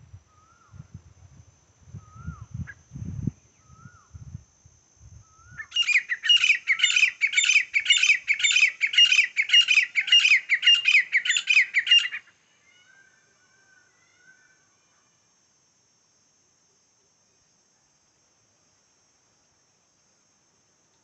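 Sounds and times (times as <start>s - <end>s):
francolin calling: 0.0s - 0.9s, 1.9s - 2.9s, 3.5s - 4.2s, 5.2s - 15.0s.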